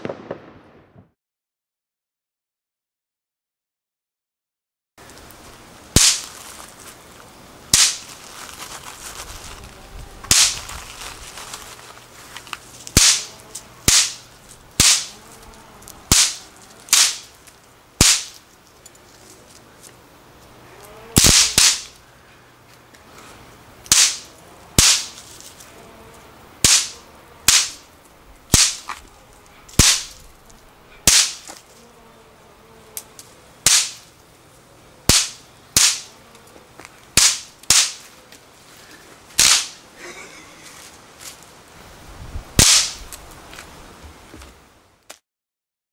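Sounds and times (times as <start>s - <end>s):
snap pops bursting on concrete: 6.0s - 6.5s, 7.7s - 8.1s, 10.3s - 10.8s, 12.4s - 18.5s, 20.8s - 22.0s, 23.8s - 25.4s, 26.6s - 27.9s, 28.5s - 29.1s, 29.7s - 30.2s, 31.0s - 31.8s, 32.9s - 34.1s, 35.1s - 38.1s, 39.4s - 39.8s, 42.6s - 43.2s.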